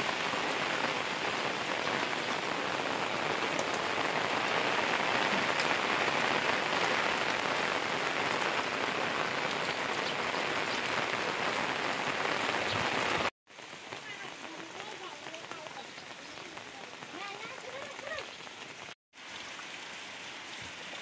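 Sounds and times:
steady rain: 0.0 - 21.0
raindrop ticks: 3.1 - 4.3, 4.9 - 6.1, 13.6 - 18.9.

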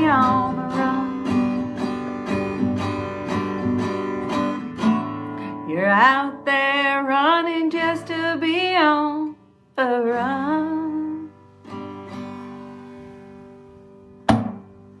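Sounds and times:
woman singing folk song: 0.0 - 4.2, 5.2 - 11.6
acoustic guitar strumming: 0.0 - 15.0
sharp knock: 14.3 - 14.7.

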